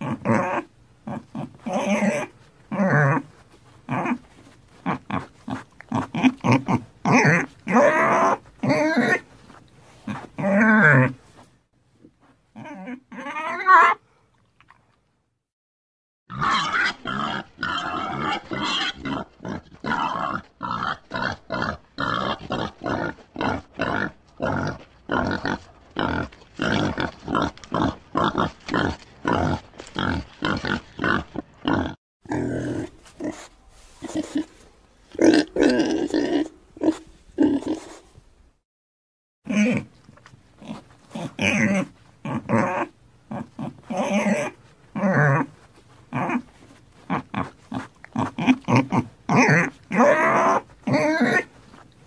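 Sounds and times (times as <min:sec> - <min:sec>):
pig grunting: 0:00.0 - 0:03.3, 0:03.9 - 0:04.2, 0:04.8 - 0:09.2, 0:16.3 - 0:38.0, 0:39.5 - 0:39.9, 0:40.6 - 0:45.5, 0:46.1 - 0:51.5.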